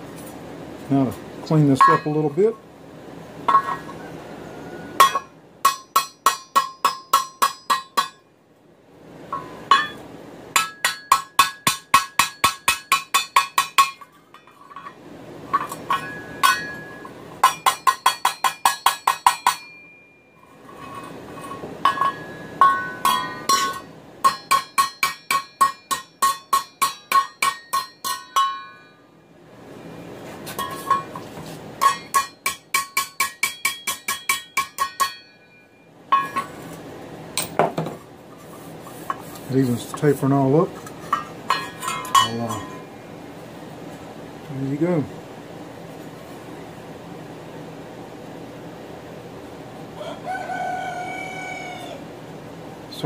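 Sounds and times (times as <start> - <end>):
hammer striking steel pan: 1.8 - 2.4, 5.0 - 8.3, 9.3 - 20.2, 21.4 - 29.0, 30.6 - 36.6, 41.1 - 42.9.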